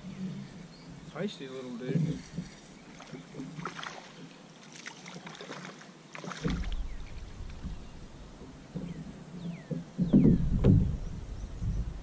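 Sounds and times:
fish splashing at water surface: 0:03.0 - 0:07.6
low thump: 0:06.4 - 0:09.0, 0:09.7 - 0:11.8.

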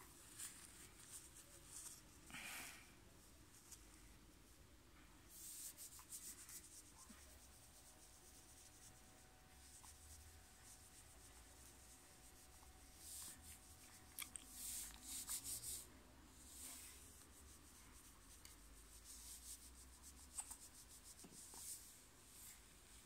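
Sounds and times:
hand rubbing clothes and diaper: 0:09.6 - 0:22.7.

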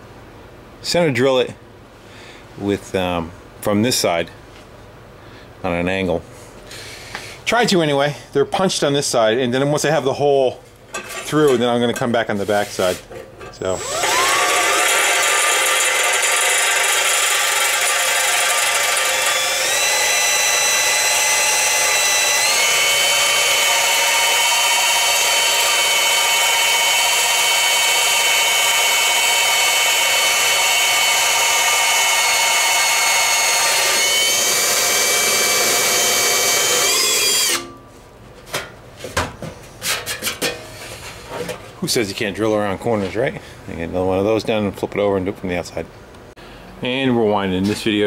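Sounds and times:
power drill motor whine: 0:13.8 - 0:37.8.

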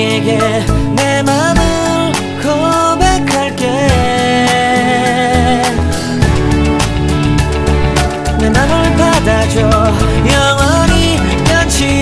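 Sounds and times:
pop music with steady beat: 0:00.0 - 0:12.0.

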